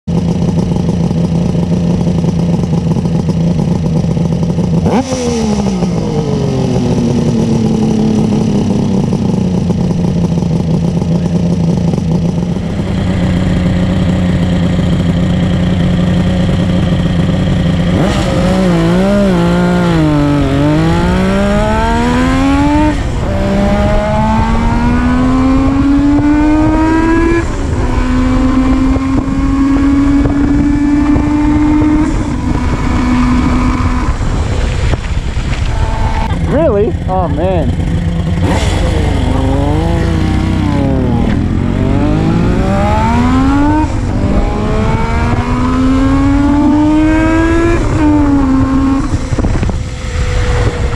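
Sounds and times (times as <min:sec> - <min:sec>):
two-stroke motorcycle engine idling: 0:00.1 - 0:05.0, 0:05.8 - 0:18.0, 0:35.5 - 0:41.8
engine revving: 0:03.0 - 0:50.9.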